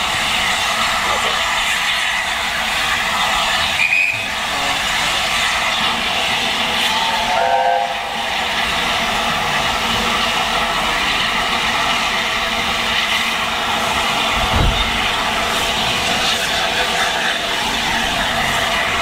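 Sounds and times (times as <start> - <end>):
steam and rolling stock rushing: 0.0 - 19.0
steam train whistle: 3.7 - 5.5, 6.8 - 8.4
low thump: 14.3 - 15.8.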